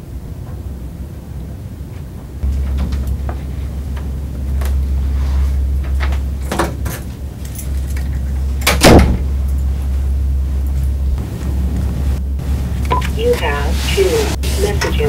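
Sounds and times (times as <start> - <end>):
low electrical hum: 0.0 - 15.0
keys rattling in a lock: 6.9 - 8.4
door shutting with a thump: 8.6 - 9.3.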